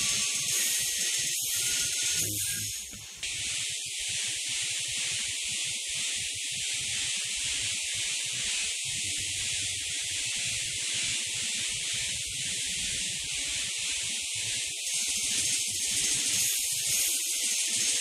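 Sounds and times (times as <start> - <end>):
static hiss: 0.0 - 12.1.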